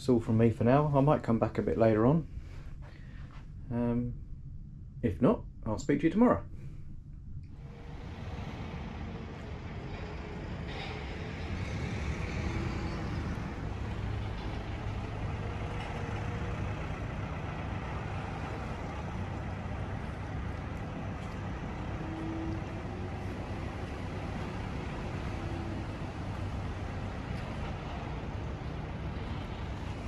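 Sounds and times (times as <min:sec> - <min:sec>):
low rumble: 0:00.0 - 0:30.0.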